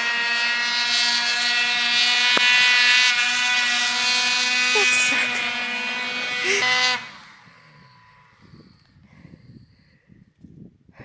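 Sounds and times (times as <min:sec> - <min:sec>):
snowmobile engine running: 0:00.0 - 0:08.8.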